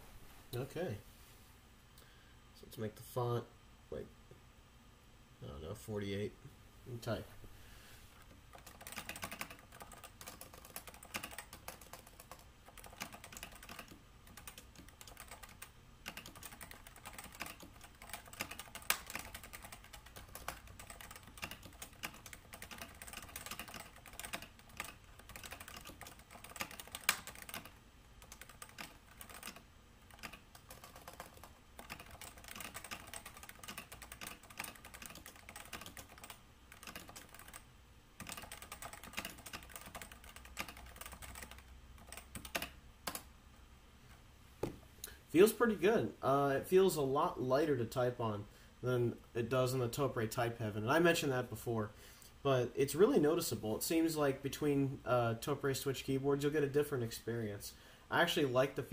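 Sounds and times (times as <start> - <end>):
typing on keyboard: 8.5 - 37.6, 38.2 - 43.3.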